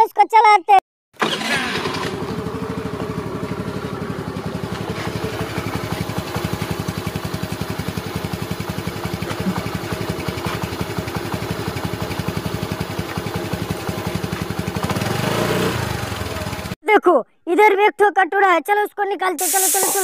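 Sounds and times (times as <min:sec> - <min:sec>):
small engine idling: 0:01.2 - 0:16.8.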